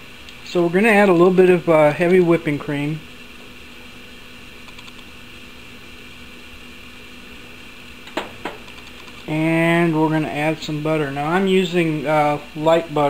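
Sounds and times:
low background hiss: 0.0s - 13.0s.

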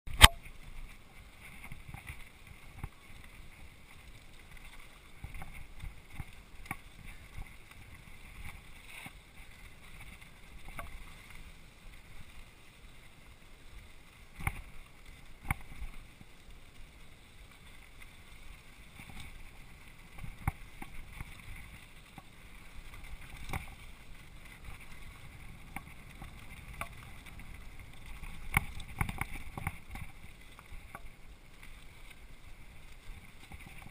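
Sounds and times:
bike tyres rumbling on dirt: 0.1s - 33.9s
bike knocking and rattling: 18.9s - 31.1s.

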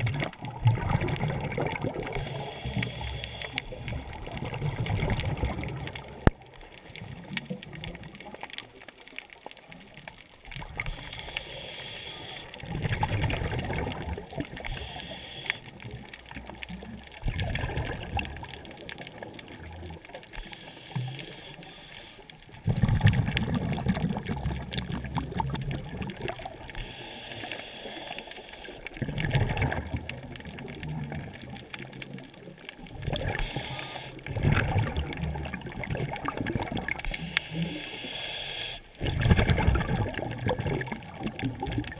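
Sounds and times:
exhaled bubbles rushing: 0.0s - 3.0s, 3.7s - 8.8s, 12.4s - 14.8s, 15.7s - 20.3s, 22.5s - 26.8s, 28.6s - 37.8s, 39.0s - 41.9s
regulator hiss on inhale: 2.0s - 4.0s, 10.8s - 12.6s, 14.6s - 15.8s, 20.3s - 22.5s, 26.7s - 28.9s, 33.3s - 34.3s, 37.0s - 39.0s.

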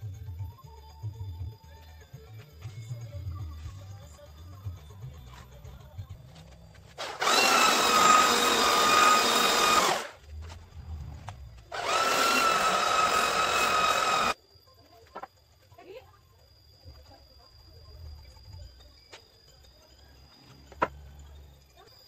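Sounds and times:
electric planer cutting wood: 7.0s - 10.1s, 11.7s - 14.4s.

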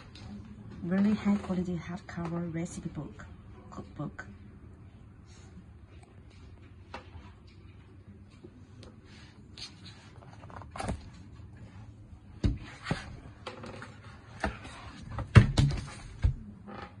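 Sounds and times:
book pages rustling: 9.4s - 11.6s.

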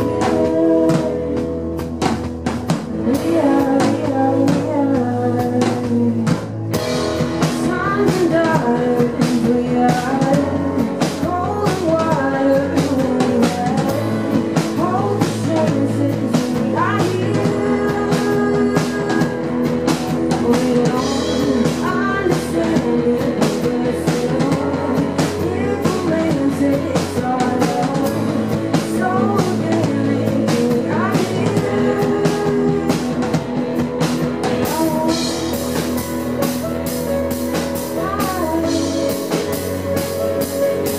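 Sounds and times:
woman singing: 0.0s - 36.3s, 37.3s - 40.9s
drum kit beat: 0.0s - 40.9s
electric keyboard: 0.0s - 40.9s.

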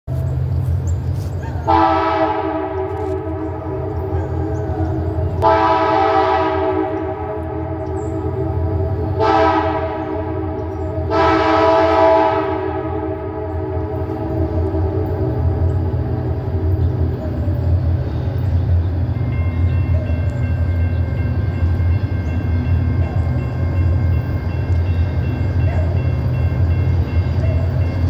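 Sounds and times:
low train rumble: 0.1s - 28.0s
locomotive air horn: 1.7s - 17.2s.

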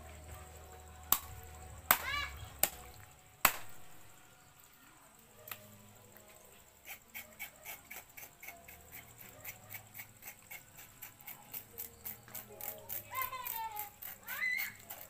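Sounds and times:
knife scraping scales: 6.8s - 15.0s.

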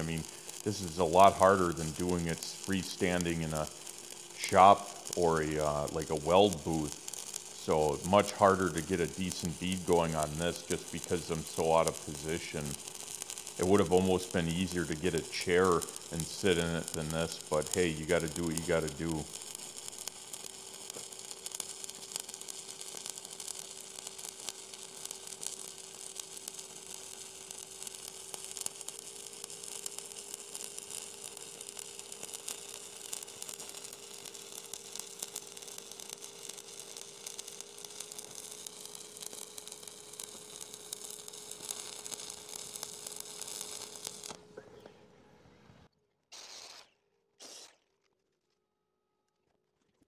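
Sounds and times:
welding arc crackling and sizzling: 0.0s - 44.6s
steady hum: 0.0s - 45.9s.

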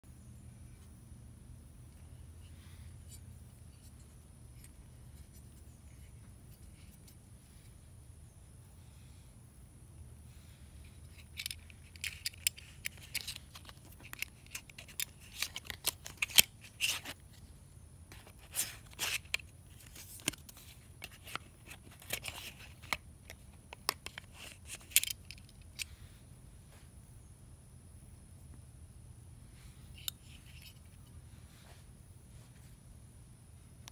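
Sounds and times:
metal buckle clicks and scrapes: 10.8s - 17.2s, 18.2s - 26.0s, 29.9s - 31.2s.

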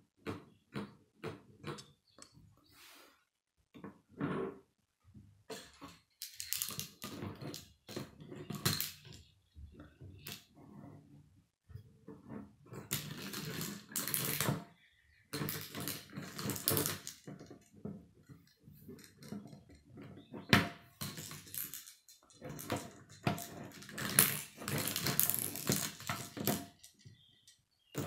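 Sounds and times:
plastic rods rattling and clicking: 5.6s - 10.5s, 21.0s - 28.0s.

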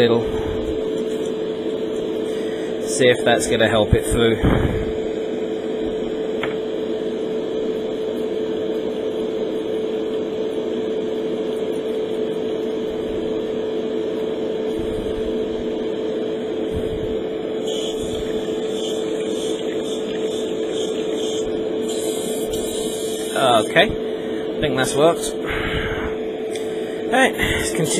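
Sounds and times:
small electric motor humming: 0.0s - 27.9s
airbrush hiss: 17.6s - 23.9s.

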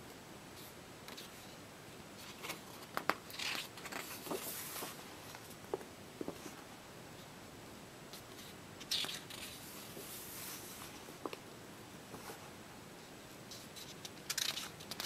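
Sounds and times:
paper pages crinkling: 2.2s - 5.5s, 13.5s - 15.0s.

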